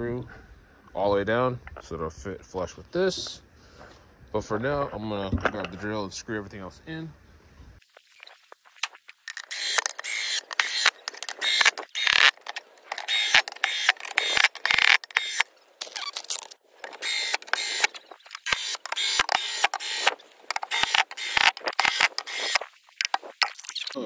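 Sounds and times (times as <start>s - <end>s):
cordless drill driving screws: 9.4s - 23.3s.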